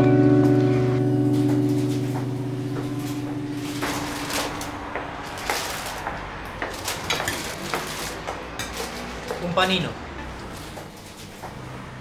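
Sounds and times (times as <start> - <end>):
acoustic guitar chord: 0.0 - 4.9.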